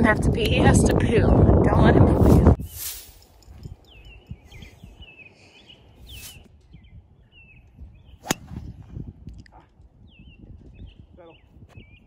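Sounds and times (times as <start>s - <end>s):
small birds chirping: 3.4s - 12.0s.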